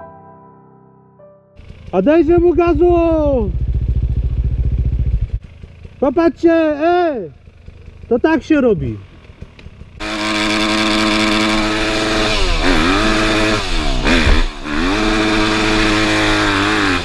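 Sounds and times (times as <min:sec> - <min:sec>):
dirt bike engine revving: 0:01.6 - 0:17.0.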